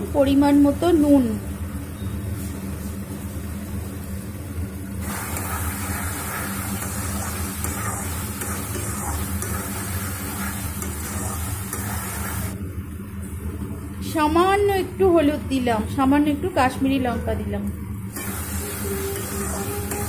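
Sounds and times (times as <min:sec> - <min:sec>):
vegetables sizzling in a pan: 0:05.0 - 0:12.6, 0:18.1 - 0:20.0
metal spatula scraping a pan: 0:05.1 - 0:12.5.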